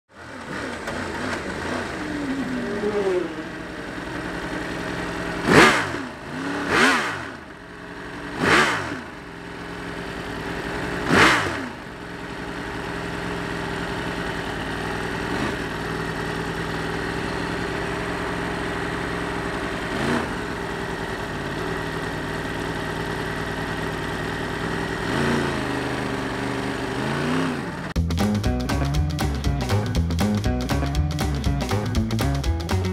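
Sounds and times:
motorcycle engine running: 0.1 - 32.9
motorcycles passing at speed: 0.2 - 7.5, 11.0 - 11.8.

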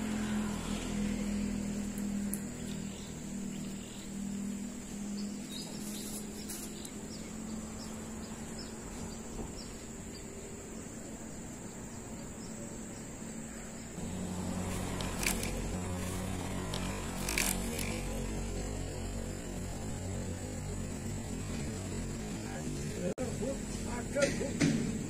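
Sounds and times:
insects droning: 0.0 - 25.0
low steady hum: 9.8 - 24.2.

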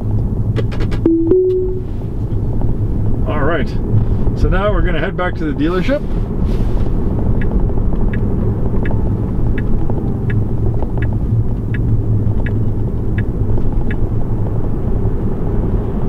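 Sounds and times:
turn signal ticking: 7.0 - 15.0.

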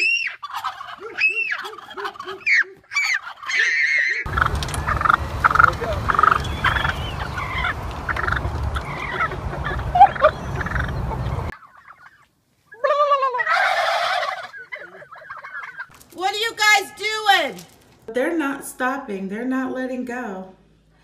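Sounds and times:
turkeys gobbling: 0.0 - 16.0
low rumble: 4.3 - 11.5.

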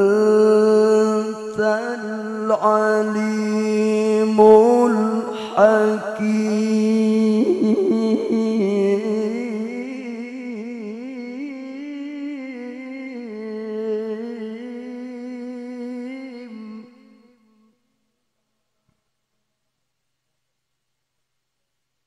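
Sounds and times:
man chanting melodically: 0.0 - 17.5.

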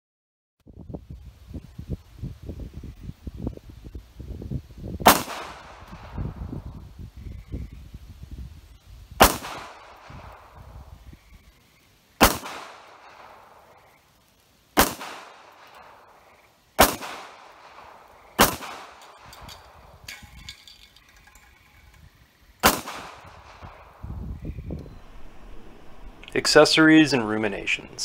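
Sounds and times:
pistol shots echoing: 9.2 - 10.5, 12.2 - 13.6, 14.8 - 16.0, 16.8 - 19.5, 22.6 - 23.9.

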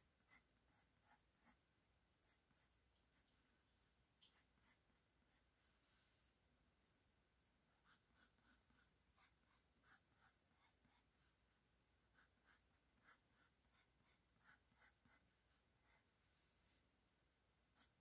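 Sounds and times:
pencil scratching on paper: 0.0 - 1.6, 2.2 - 3.3, 4.2 - 6.1, 7.7 - 11.4, 12.1 - 16.8, 17.8 - 18.0.

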